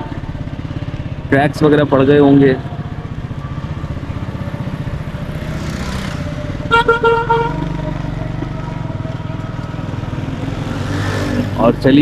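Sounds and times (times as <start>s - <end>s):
motorcycle engine running: 0.0s - 12.0s
vehicle horn beeps: 6.7s - 7.8s.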